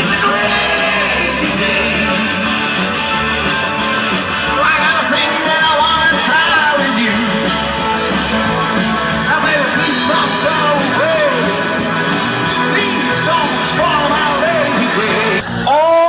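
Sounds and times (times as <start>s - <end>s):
person singing: 0.0s - 2.6s, 9.2s - 16.0s
live rock band playing: 0.0s - 16.0s.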